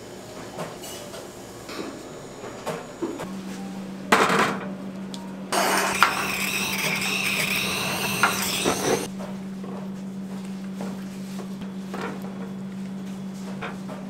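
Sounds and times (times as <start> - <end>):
electric mixer whirring: 5.6 - 9.1.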